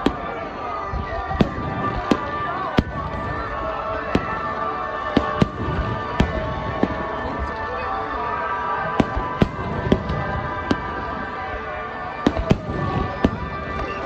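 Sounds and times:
music playing: 0.0 - 14.0.

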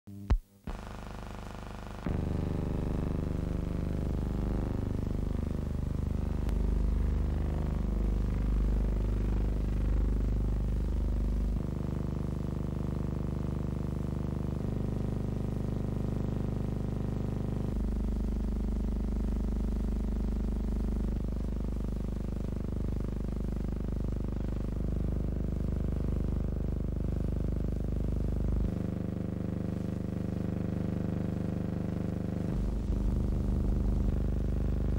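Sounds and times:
sustained low music chords: 2.1 - 11.7, 32.5 - 34.9.

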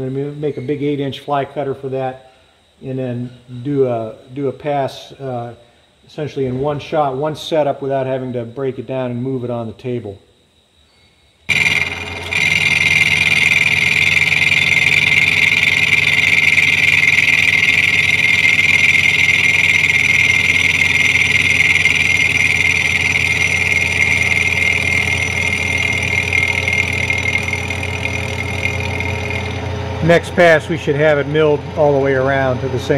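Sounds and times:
milling machine cutting metal: 11.5 - 30.6
machine low hum: 11.5 - 32.9.

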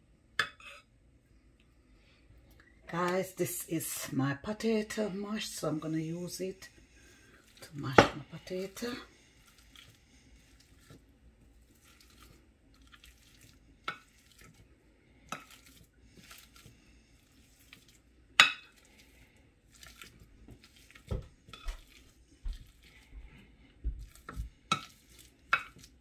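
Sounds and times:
potato masher mashing potatoes: 7.4 - 26.0.

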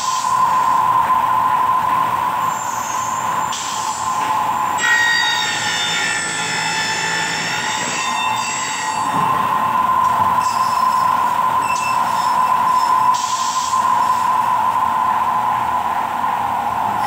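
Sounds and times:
milling machine whine: 0.0 - 17.0
cutter squealing high: 4.8 - 9.4.

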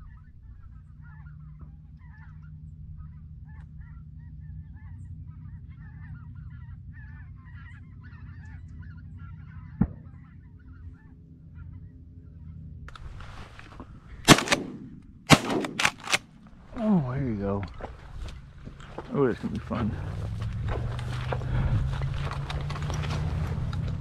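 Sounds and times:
geese honking: 0.0 - 12.6.

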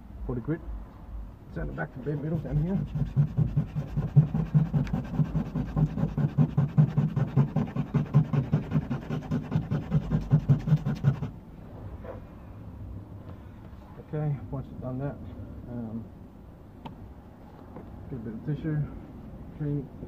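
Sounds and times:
sandpaper scrubbing metal: 2.1 - 11.3.

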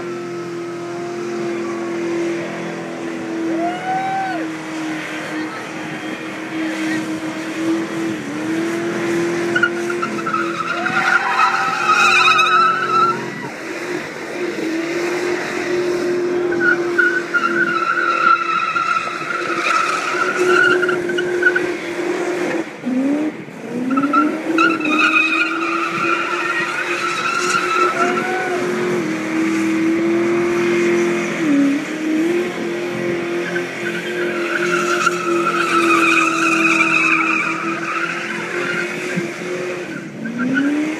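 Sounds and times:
car engine revving high: 0.0 - 40.9
tyres squealing: 9.2 - 13.5, 16.4 - 21.7, 23.9 - 29.0, 33.1 - 40.7.

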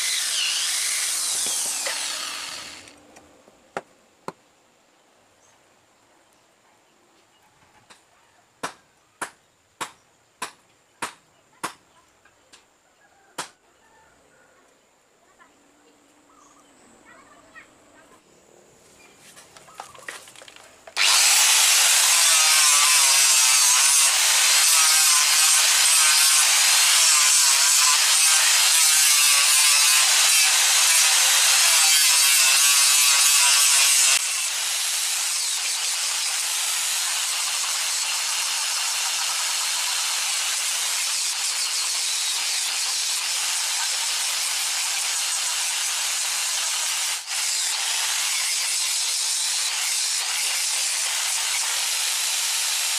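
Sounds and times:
angle grinder grinding wood: 0.0 - 3.3, 19.3 - 52.9.

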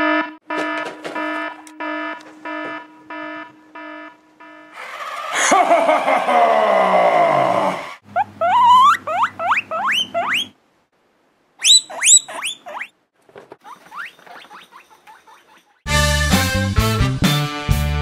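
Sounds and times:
guinea pig squealing: 8.0 - 10.6, 11.6 - 13.0, 13.6 - 15.7.

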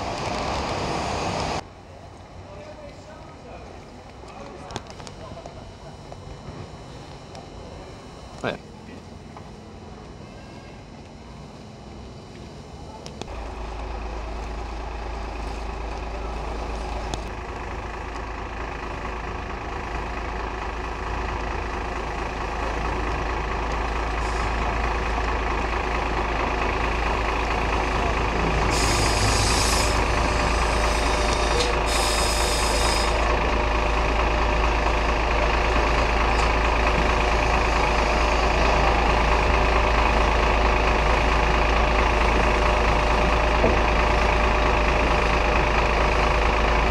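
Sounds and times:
tram equipment droning: 0.0 - 46.9
short bursts of hissing: 28.7 - 33.2.

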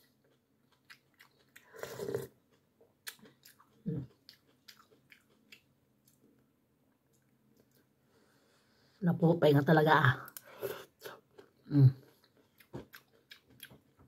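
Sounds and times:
wet chewing and mouth clicks: 0.0 - 6.3, 10.3 - 14.0.

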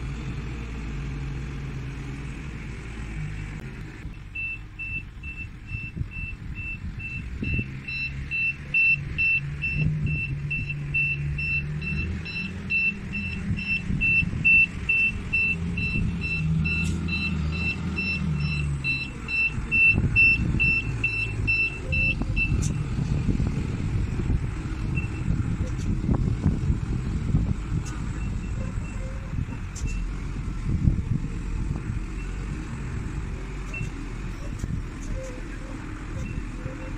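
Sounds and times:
diesel engine rumble: 0.0 - 36.9
forklift reversing alarm beeping: 4.1 - 22.8, 24.9 - 25.4, 28.1 - 30.1, 33.7 - 34.5, 35.2 - 36.9.

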